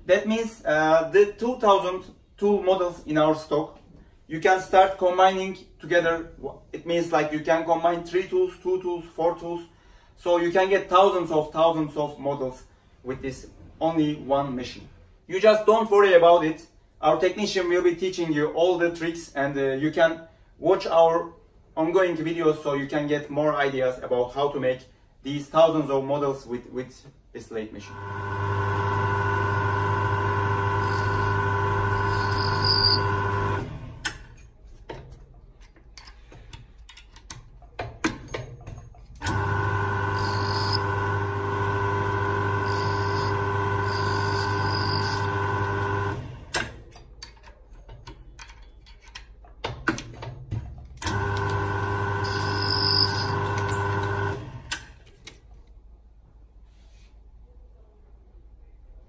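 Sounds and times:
lathe motor humming: 0:27.9 - 0:34.0, 0:39.2 - 0:46.5, 0:51.1 - 0:54.6
small clicks of tool handling: 0:34.0 - 0:39.3, 0:46.5 - 0:51.6.

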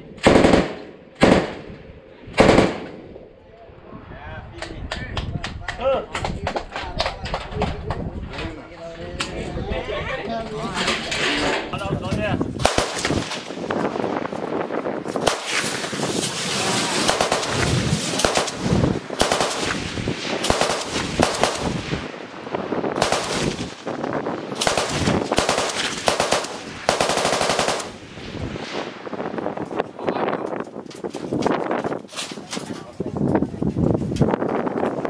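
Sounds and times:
automatic gunfire bursts: 0:00.2 - 0:01.6, 0:02.4 - 0:02.9, 0:12.6 - 0:13.3, 0:17.0 - 0:21.8, 0:23.0 - 0:23.8, 0:24.6 - 0:28.0.

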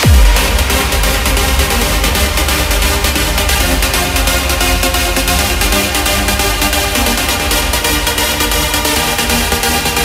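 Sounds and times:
trance music: 0:00.0 - 0:10.0.

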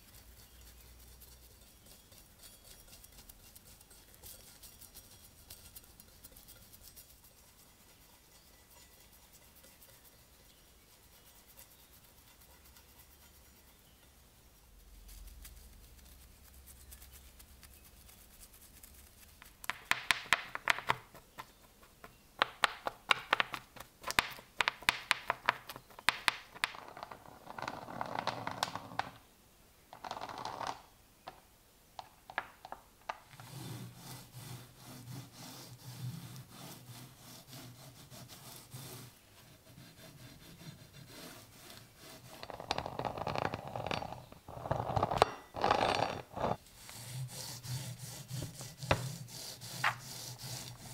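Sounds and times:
brush scrubbing iron: 0:00.0 - 0:14.0, 0:33.4 - 0:42.5, 0:46.0 - 0:50.9.

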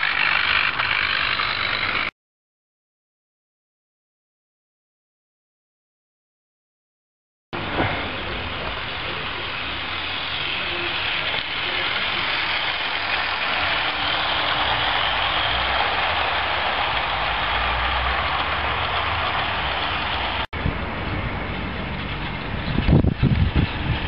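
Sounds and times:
model train wheels rolling: 0:00.0 - 0:02.1, 0:07.6 - 0:20.5, 0:21.2 - 0:24.0.

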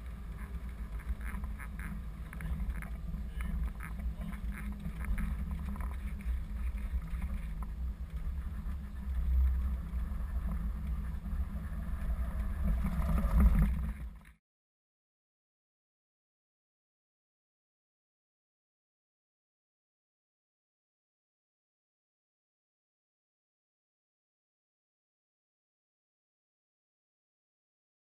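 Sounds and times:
truck engine and tyres rumbling: 0:00.0 - 0:14.2.

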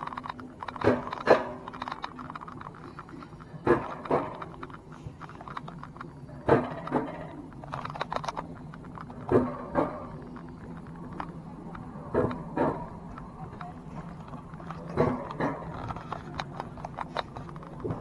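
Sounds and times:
coaster wheels clacking: 0:00.0 - 0:18.0
low steady hum: 0:00.0 - 0:18.0.

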